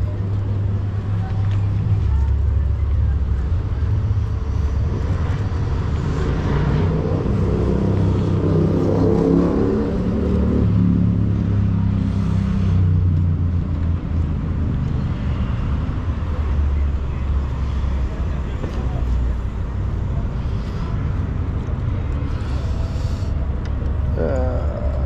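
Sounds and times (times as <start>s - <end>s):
rumble of traffic: 0.0s - 25.0s
vehicle engine passing: 3.8s - 13.4s.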